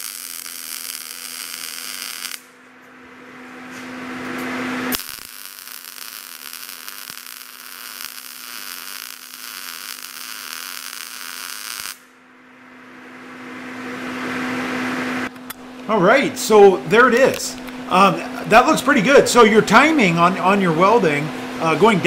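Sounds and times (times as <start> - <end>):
welding arc crackling sizzle: 0.0 - 2.6, 4.3 - 12.2
welder hum: 0.0 - 22.0.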